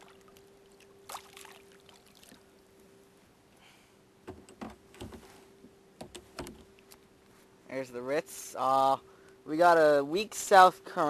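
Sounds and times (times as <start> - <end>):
water lapping around kayak: 0.0 - 3.7
faint steady hum: 0.0 - 11.0.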